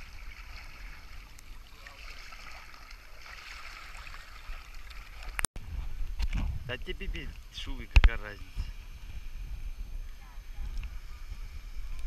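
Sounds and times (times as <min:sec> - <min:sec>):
water splashing and sloshing: 0:00.0 - 0:05.5.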